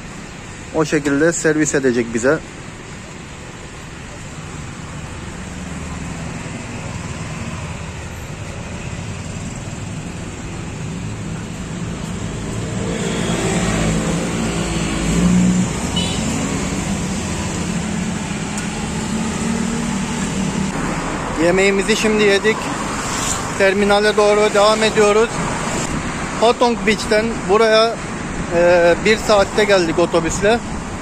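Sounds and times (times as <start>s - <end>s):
road traffic rumble: 0.0s - 31.0s
vehicle passing close by: 10.9s - 21.5s.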